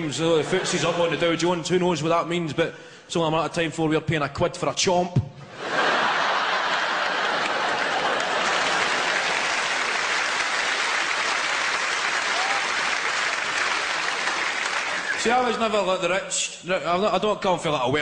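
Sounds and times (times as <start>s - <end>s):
audience applauding: 6.0s - 15.7s.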